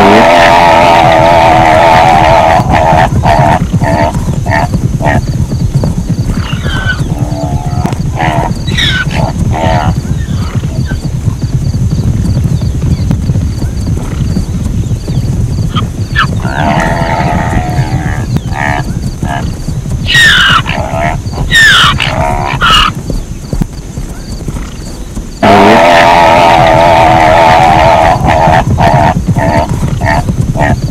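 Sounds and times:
zebra calling: 0:00.0 - 0:05.3, 0:06.3 - 0:11.0, 0:15.7 - 0:23.0, 0:25.4 - 0:30.9
steady low rumble: 0:01.2 - 0:30.9.

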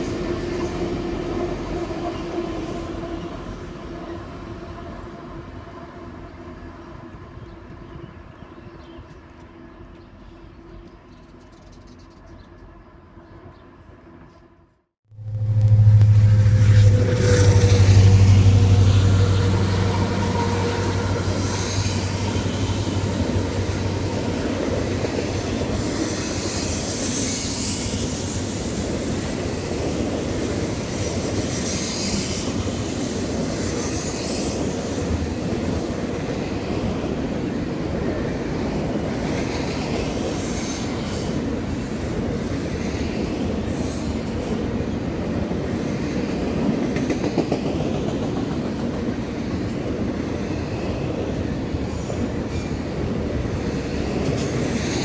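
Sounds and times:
diesel engine drone: 0:15.1 - 0:24.1
train wheels rumbling on rail: 0:15.2 - 0:55.0.

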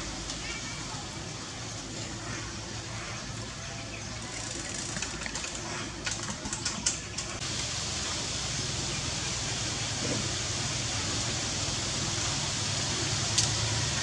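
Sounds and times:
outdoor background hiss: 0:00.0 - 0:14.0
small sharp clicks and crackles: 0:04.3 - 0:07.4, 0:13.3 - 0:13.6.

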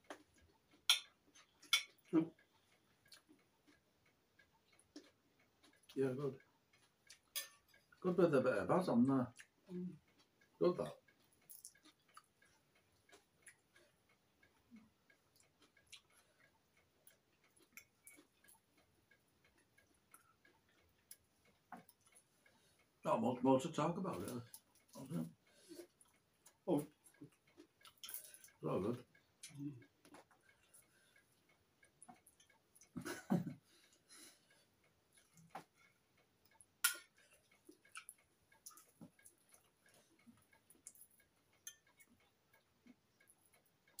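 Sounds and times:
knife and fork clicking on plates: 0:00.8 - 0:02.1, 0:07.1 - 0:07.9, 0:36.8 - 0:39.7
cutlery clatter: 0:07.3 - 0:07.6.

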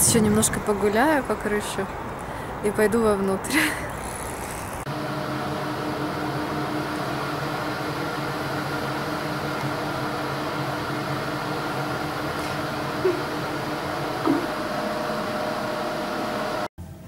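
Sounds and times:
open-air noise: 0:00.0 - 0:17.0
electric motor hum: 0:03.7 - 0:16.7.

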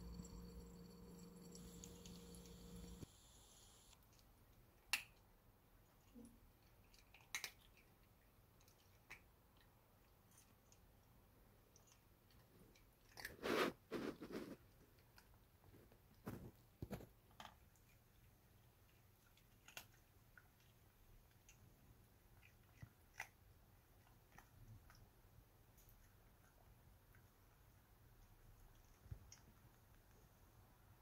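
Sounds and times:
cat crunching dry kibble: 0:11.8 - 0:25.0.

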